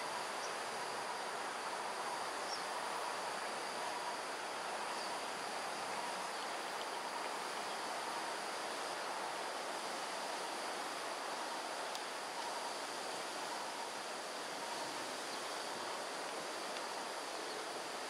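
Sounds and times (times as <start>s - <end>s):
insects droning: 0.0s - 18.0s.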